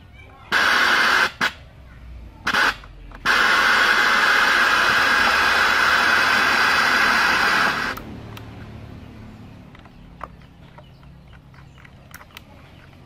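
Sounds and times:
radio static hissing: 0.5s - 1.6s, 2.4s - 8.0s.

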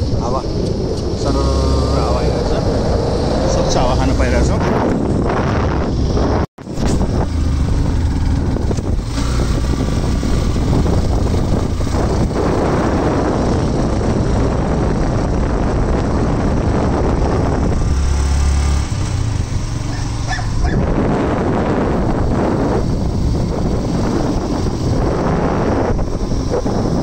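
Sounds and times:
motorbike engine: 0.0s - 27.0s
road noise: 0.0s - 27.0s
wind buffeting microphone: 0.0s - 27.0s.

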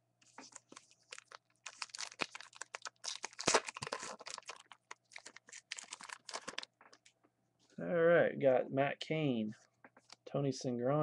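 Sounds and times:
wrapper crinkling and tearing: 0.4s - 7.0s.

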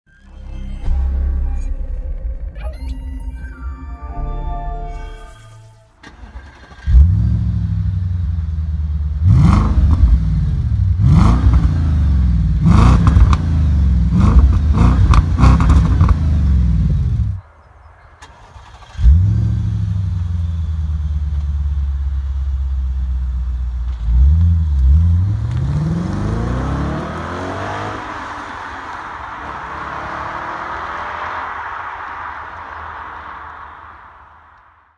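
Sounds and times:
car engine revving: 6.0s - 17.4s, 18.2s - 34.7s.

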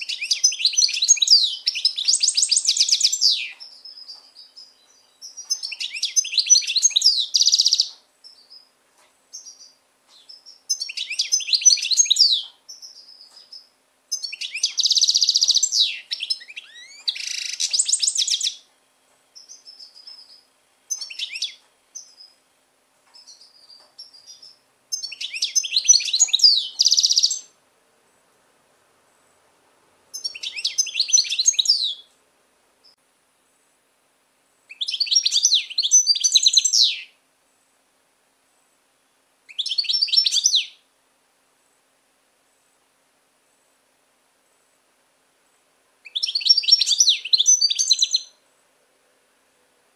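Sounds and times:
goldfinch twittering song: 0.0s - 8.7s, 9.3s - 18.7s, 19.4s - 22.4s, 23.2s - 27.6s, 30.1s - 32.1s, 34.7s - 37.2s, 39.5s - 40.8s, 46.0s - 48.4s
short single bird chirps: 9.3s - 18.7s, 34.7s - 37.2s.

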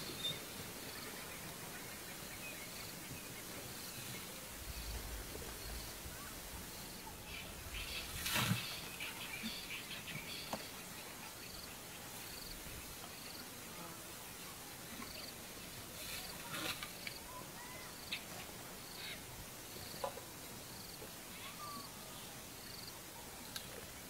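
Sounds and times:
steady hiss: 0.0s - 24.0s
dry grass and leaves rustling: 2.9s - 9.4s, 15.8s - 17.3s.

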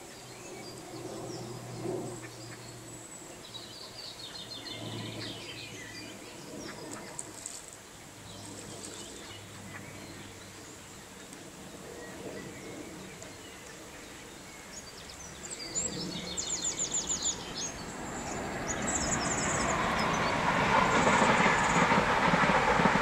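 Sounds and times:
songbird singing: 0.0s - 22.1s
outdoor background noise: 0.0s - 23.0s
broad rushing noise: 15.2s - 23.0s.

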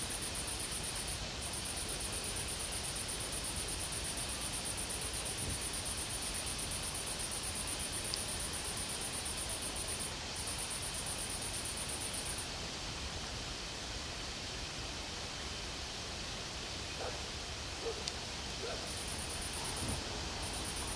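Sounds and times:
steady hiss: 0.0s - 20.9s
insect trilling: 18.7s - 20.9s.

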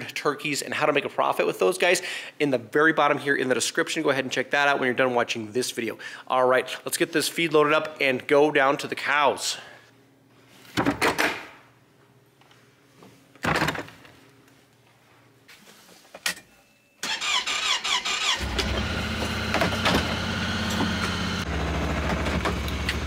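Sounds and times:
vehicle engine starting and running: 17.0s - 23.0s.

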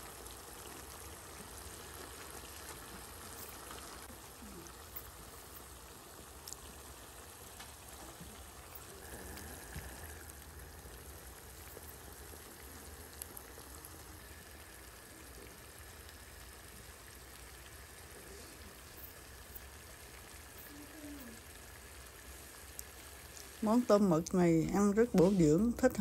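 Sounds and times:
food bubbling and sizzling in pan: 0.0s - 26.0s
light ticks: 6.4s - 6.6s.

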